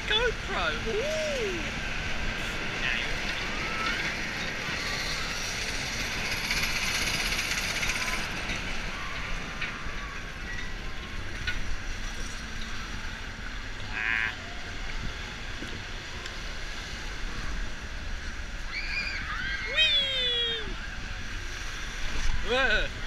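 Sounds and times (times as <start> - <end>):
low rumble of ride machinery: 0.0 - 23.0
conveyor lift clatter and hiss: 0.2 - 13.8.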